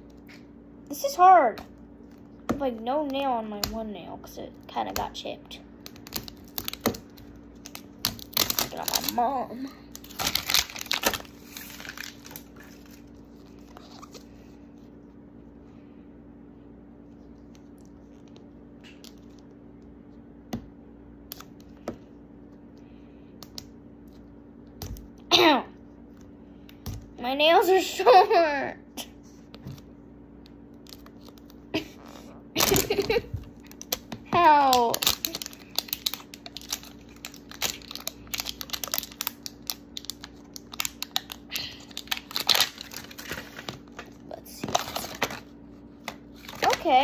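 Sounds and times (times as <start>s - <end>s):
plastic crinkling and clicking: 5.8s - 9.3s, 9.9s - 14.2s, 32.6s - 47.0s.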